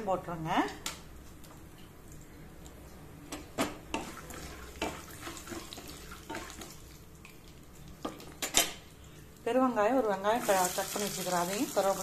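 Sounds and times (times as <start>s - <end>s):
spatula stirring: 3.9s - 8.4s
seeds sizzling in hot oil: 10.4s - 12.0s.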